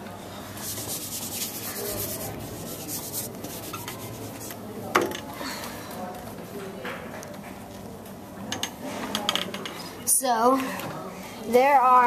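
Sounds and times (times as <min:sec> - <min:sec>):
eraser rubbing on whiteboard: 0:00.6 - 0:04.6.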